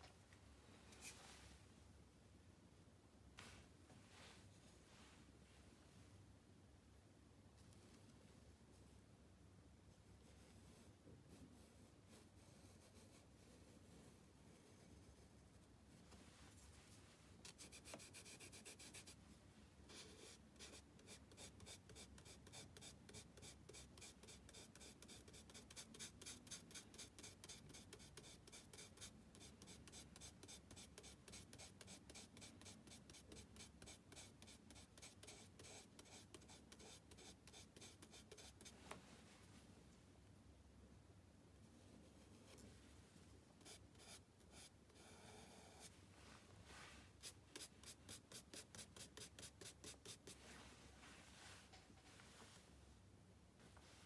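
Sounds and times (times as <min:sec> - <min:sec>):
charcoal scratching on paper: 0:17.4 - 0:19.2, 0:19.9 - 0:38.9, 0:43.6 - 0:45.9, 0:47.2 - 0:50.4.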